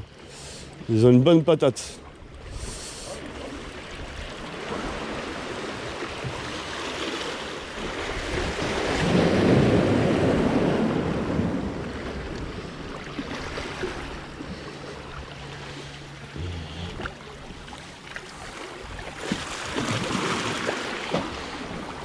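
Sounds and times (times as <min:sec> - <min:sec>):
sea waves washing over rocks: 0:02.5 - 0:14.4, 0:18.2 - 0:22.0.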